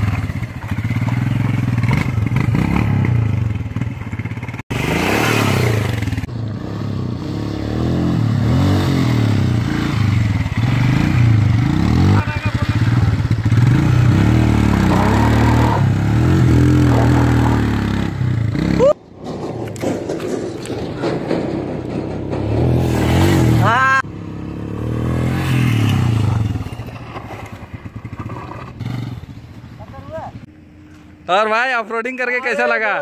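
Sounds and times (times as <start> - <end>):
motorcycle engine revving: 0.0 - 30.5
gravel scraping under tyres: 14.6 - 17.9, 19.0 - 23.7, 25.3 - 30.2.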